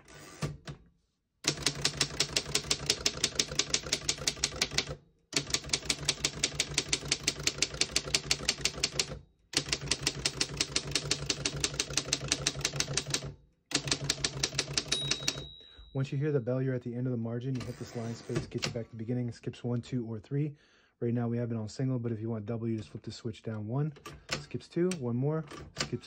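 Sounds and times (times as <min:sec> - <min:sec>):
manual typewriter key clatter: 0:01.5 - 0:15.5, 0:25.5 - 0:26.0.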